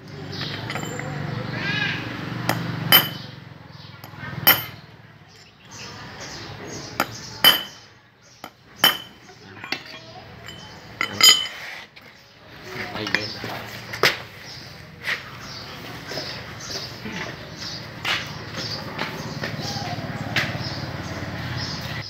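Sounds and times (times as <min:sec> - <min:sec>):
hammer striking steel punch: 0:02.5 - 0:03.3, 0:04.0 - 0:04.8, 0:07.0 - 0:07.8, 0:08.4 - 0:09.2.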